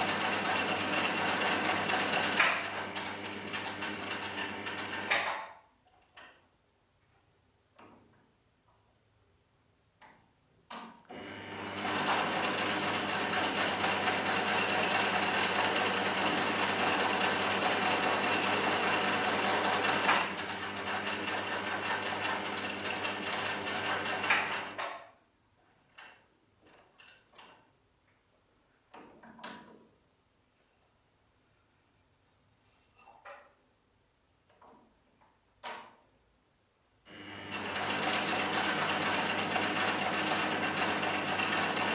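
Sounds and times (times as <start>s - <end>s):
electric sewing machine running: 0.0s - 5.3s, 11.1s - 24.8s, 37.1s - 41.9s.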